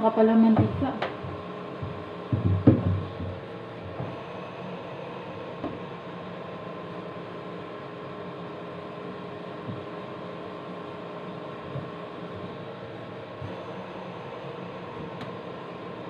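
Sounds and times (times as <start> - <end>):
steady mechanical hum: 0.0 - 16.0
soft knocks: 0.6 - 3.4.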